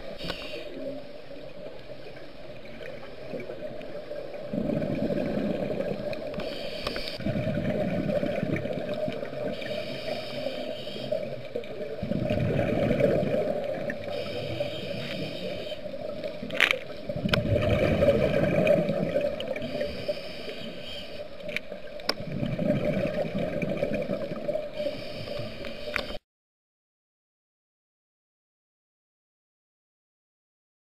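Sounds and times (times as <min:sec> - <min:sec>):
hissing regulator inhale: 0:00.1 - 0:01.3, 0:06.2 - 0:07.4, 0:09.4 - 0:11.4, 0:14.0 - 0:16.0, 0:19.5 - 0:21.4, 0:24.7 - 0:26.2
rush of exhaust bubbles: 0:07.2 - 0:09.5, 0:12.0 - 0:14.0, 0:17.2 - 0:19.4.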